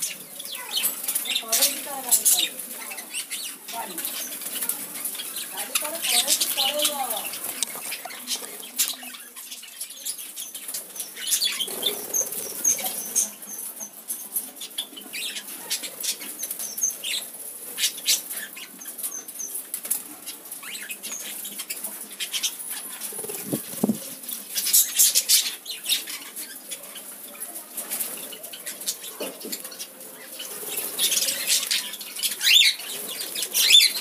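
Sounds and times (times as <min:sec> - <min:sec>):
birds fluttering wings: 0:00.0 - 0:09.6, 0:10.2 - 0:14.6, 0:15.2 - 0:34.0.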